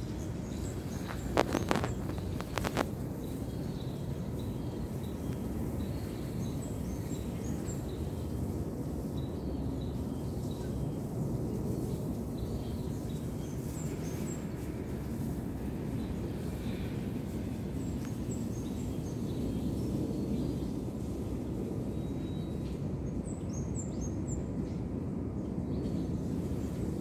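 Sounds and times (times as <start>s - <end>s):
small birds chirping: 0.0s - 21.1s
low outdoor rumble: 0.0s - 21.9s
sharp clicks: 1.0s - 2.9s.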